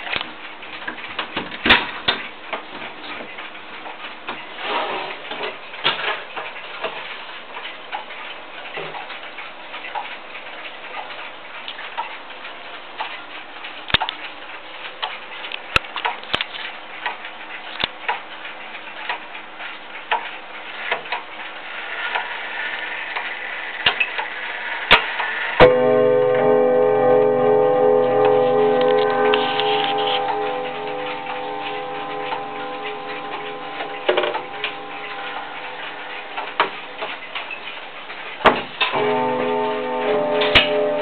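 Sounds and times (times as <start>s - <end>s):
deep clock chime: 25.6s - 37.4s, 38.9s - 41.0s
grandfather clock ticking: 25.6s - 41.0s
clock mechanism click: 28.2s - 41.0s.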